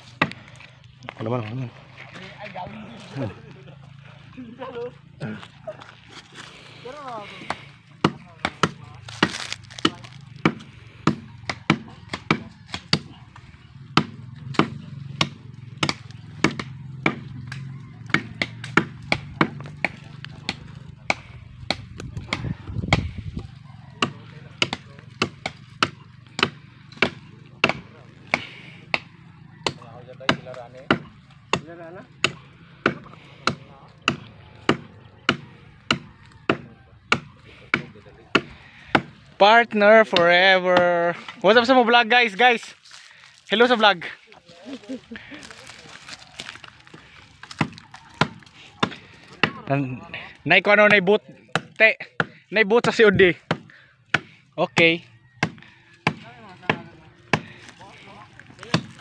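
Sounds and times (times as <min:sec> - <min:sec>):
machete chopping tree trunk: 0:00.0 - 0:00.4, 0:07.4 - 0:23.2, 0:24.0 - 0:39.2, 0:45.6 - 0:49.7, 0:50.8 - 0:59.0.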